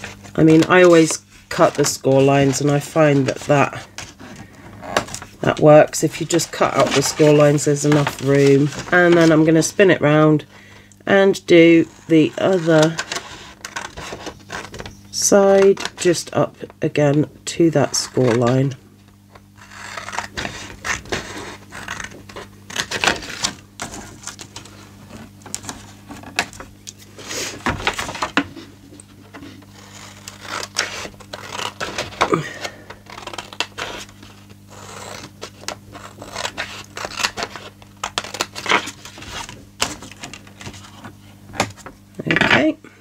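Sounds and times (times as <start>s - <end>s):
paper rustling and sliding: 0.0s - 9.9s, 11.8s - 16.1s, 19.6s - 42.5s
scissors snipping paper: 29.8s - 34.1s, 34.7s - 40.4s.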